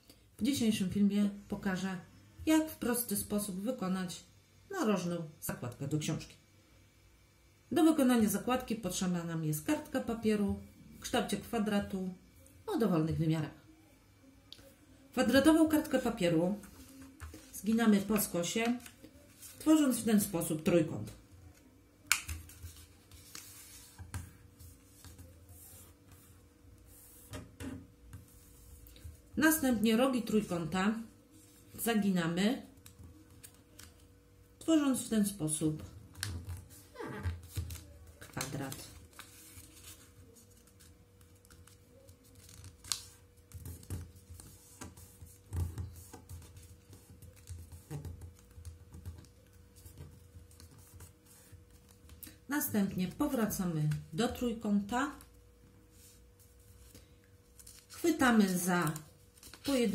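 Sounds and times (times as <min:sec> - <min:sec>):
faint steady hum: 0:00.0 - 0:59.9
paper rustling while folded: 0:22.3 - 0:27.4, 0:36.1 - 0:52.2, 0:55.9 - 0:59.9.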